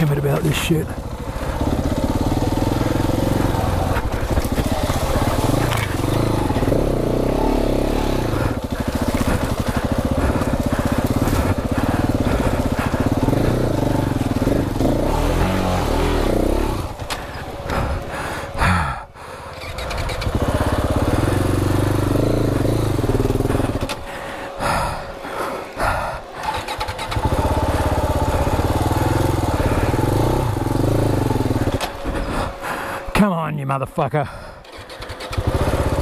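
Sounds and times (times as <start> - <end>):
motorcycle engine revving: 0.0 - 33.1, 34.5 - 36.0
motorcycle hitting bumps: 0.4 - 18.6, 19.5 - 24.1, 26.4 - 32.6.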